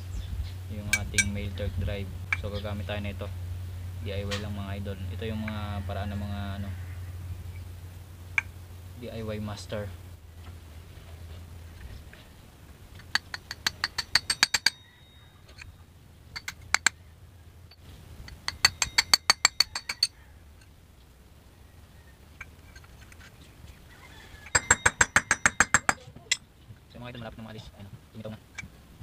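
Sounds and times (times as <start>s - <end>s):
hammer tapping steel punch: 0.9s - 1.4s, 13.0s - 14.8s, 16.4s - 17.0s, 18.3s - 20.1s, 24.5s - 26.3s.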